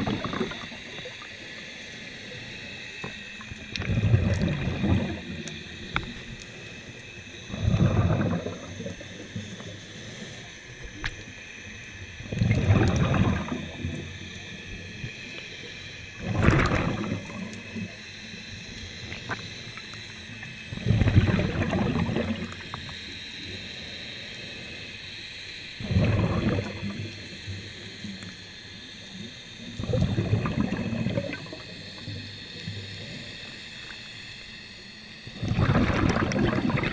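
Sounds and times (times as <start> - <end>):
exhaled bubbles underwater: 0.0 - 1.5, 2.4 - 11.2, 12.0 - 15.2, 16.1 - 23.0, 25.8 - 28.2, 29.3 - 33.5, 35.2 - 36.9.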